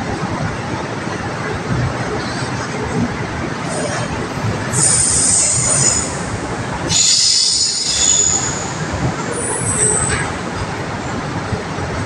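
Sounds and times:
rumble of train wagons: 0.0 - 12.0
steel wheels squealing on rails: 3.6 - 10.8.

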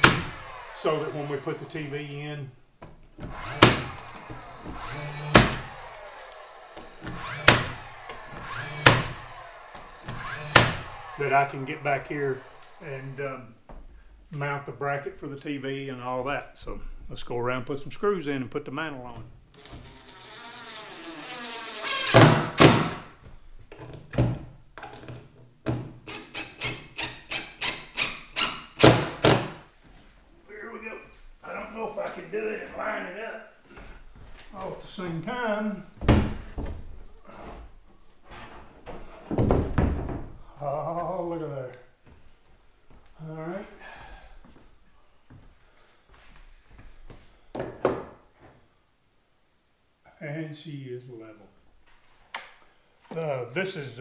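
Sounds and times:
nail gun shots: 0.0 - 1.1, 3.3 - 11.3, 22.1 - 23.1, 28.8 - 29.6
impact driver knocking: 0.0 - 1.8, 3.2 - 12.9
nail gun motor whir: 0.0 - 2.0, 3.2 - 13.2, 19.6 - 23.0.

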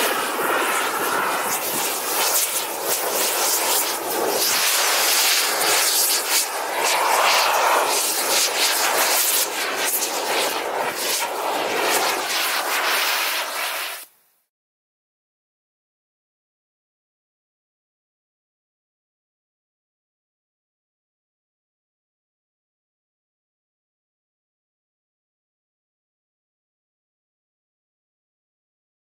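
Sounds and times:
gas torch flame hissing: 0.0 - 14.1.

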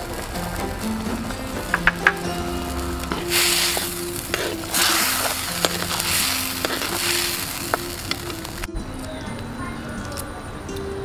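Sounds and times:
gravy sizzling in a pot: 0.0 - 8.7.

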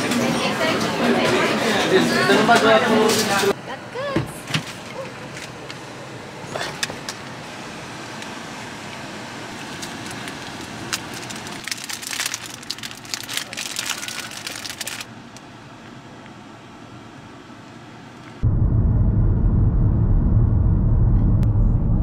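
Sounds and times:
paper wrapper crinkling: 9.6 - 15.1.

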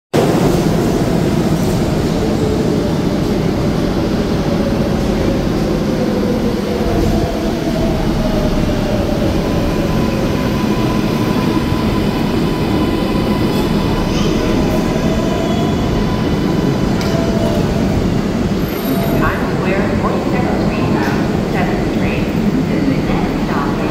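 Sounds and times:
train wheels rumbling on rail: 0.2 - 23.9.

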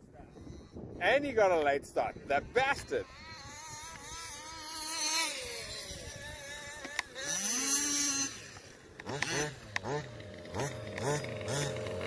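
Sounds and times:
small two-stroke engines revving: 2.4 - 12.0.

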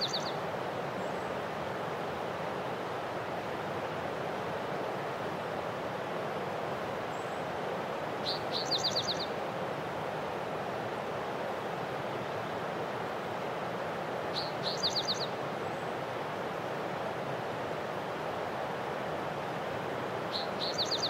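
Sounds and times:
bird whistling song: 0.0 - 0.4, 8.3 - 9.3, 14.4 - 15.3, 20.3 - 21.0
rushing background hiss: 0.0 - 21.0.

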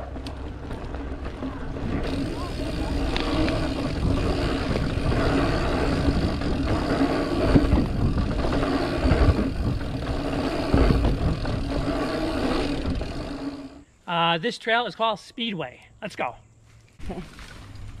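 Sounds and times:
bike knocking over bumps: 0.0 - 13.7
bike tyres rumbling on dirt: 0.0 - 13.9
wind on microphone: 1.8 - 13.4.

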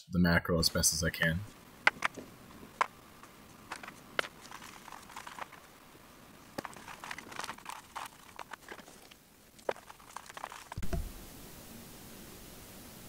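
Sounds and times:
steady hiss: 0.3 - 13.0
low thump: 10.8 - 11.2.

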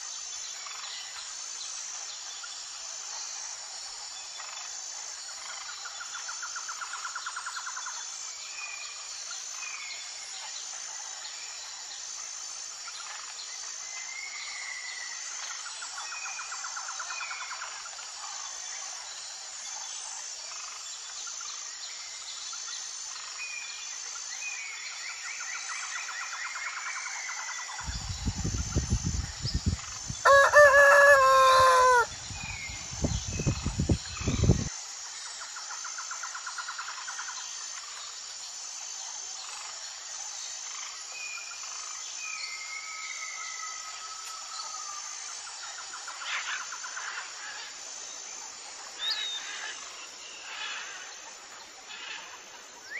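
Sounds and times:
birds chirping and trilling: 27.8 - 34.7
drawn-out bird call: 30.3 - 32.1.

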